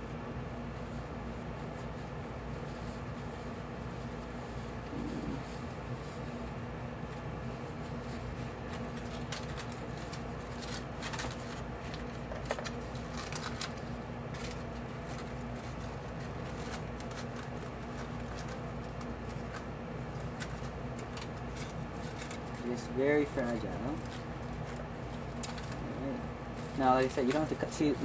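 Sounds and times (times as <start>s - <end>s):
steady low hum: 0.0s - 28.0s
toilet paper rustling: 0.8s - 28.0s
aluminum foil crinkling: 7.0s - 28.0s.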